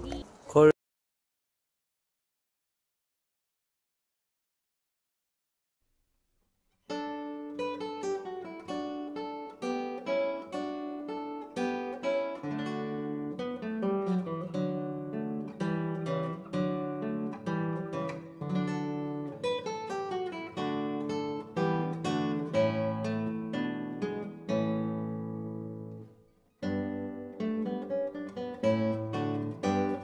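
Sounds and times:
solo acoustic guitar: 0.0 - 0.4, 6.7 - 30.0.

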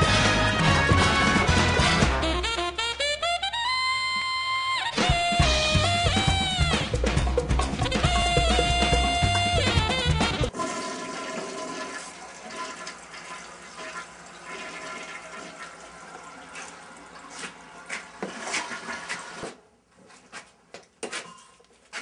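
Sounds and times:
loud music cue: 0.0 - 4.0, 4.6 - 10.5
toilet flushing: 10.5 - 19.6.

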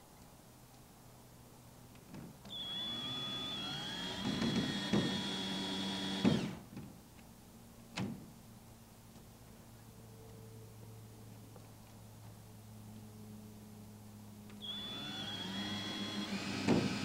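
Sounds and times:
power drill driving screw into wood: 2.5 - 6.6, 14.6 - 17.0.

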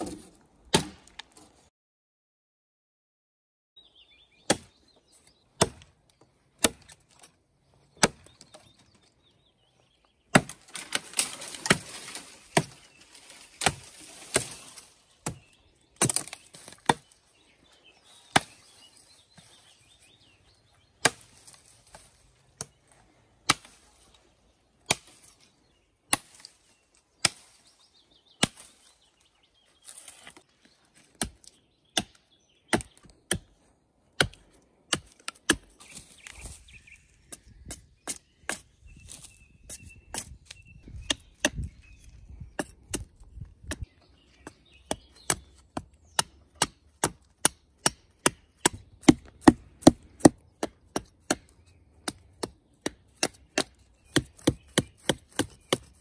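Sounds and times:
axe chopping wood: 0.0 - 1.4, 4.5 - 4.8, 5.6 - 5.9, 6.6 - 7.0, 8.0 - 8.5, 10.3 - 12.8, 13.6 - 14.6, 15.2 - 17.1, 21.0 - 21.4, 24.8 - 25.3, 31.1 - 33.5, 34.2 - 35.8, 39.7 - 41.7, 42.6 - 56.0.

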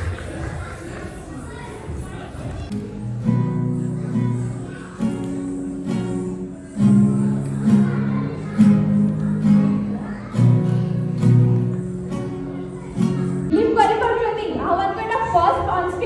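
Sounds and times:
acoustic guitar strumming chords: 2.7 - 14.2.

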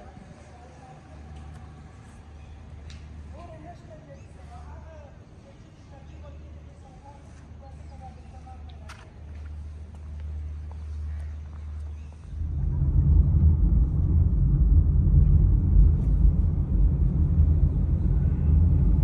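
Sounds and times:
faint low hum: 0.0 - 19.0
car engine and tyre noise: 9.0 - 19.0.

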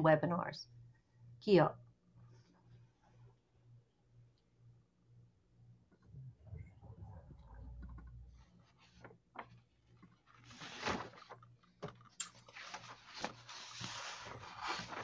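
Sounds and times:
faint clicks and knocks: 5.9 - 10.4.

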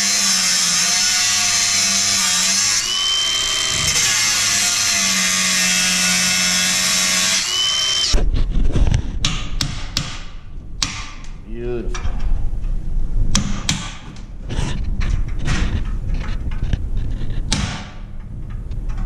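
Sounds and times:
angle grinder grinding metal: 0.0 - 8.2
loud knocks and clatter: 13.3 - 19.0.

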